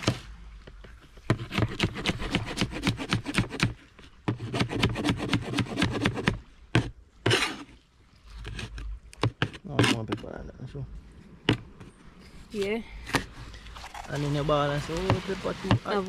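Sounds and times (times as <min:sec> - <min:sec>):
knife chopping on plastic board: 0:01.3 - 0:03.7, 0:04.3 - 0:06.9.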